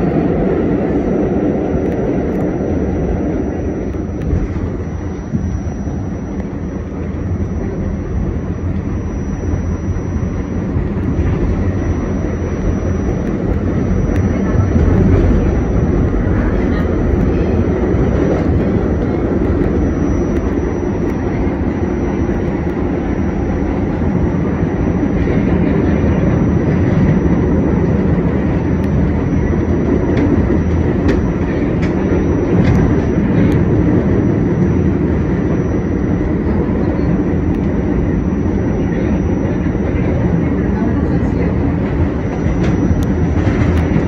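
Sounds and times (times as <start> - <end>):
subway train rumbling: 0.0 - 44.0.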